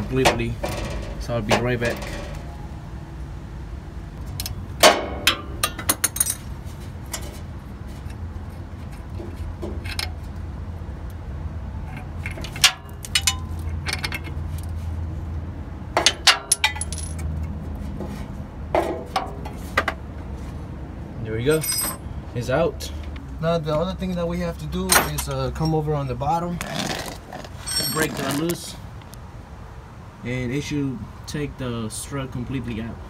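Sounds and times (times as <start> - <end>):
hand tool clinking on metal: 11.9 - 14.3, 21.5 - 22.0, 24.9 - 25.8, 27.6 - 28.5.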